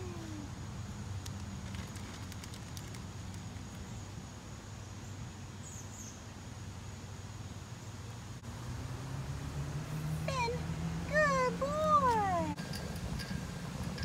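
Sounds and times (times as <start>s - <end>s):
bird chirp: 4.8s - 6.4s.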